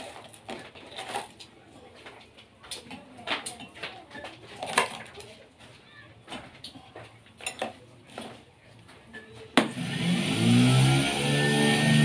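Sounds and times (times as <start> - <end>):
machine hum rising in pitch: 9.7 - 12.0.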